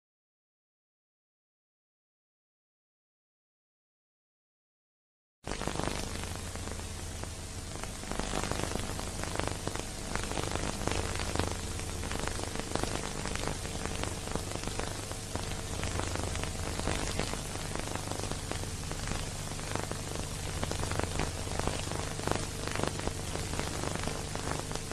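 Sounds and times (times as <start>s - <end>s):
crackling hiss: 5.5s - 24.9s
low electrical hum: 5.5s - 24.9s.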